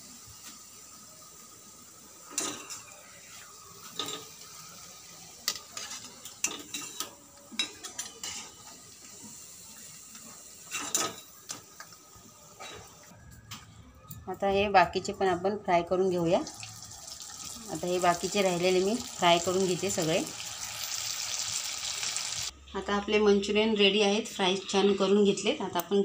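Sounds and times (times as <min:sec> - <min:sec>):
frying sizzle: 0:00.0 - 0:13.2, 0:16.2 - 0:22.5.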